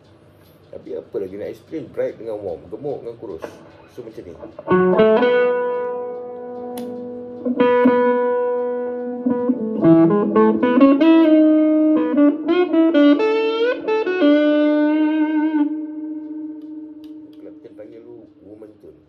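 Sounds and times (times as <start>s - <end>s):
electric guitar lead with bends: 4.5s - 17.7s
electric guitar chord strummed: 4.5s - 18.4s.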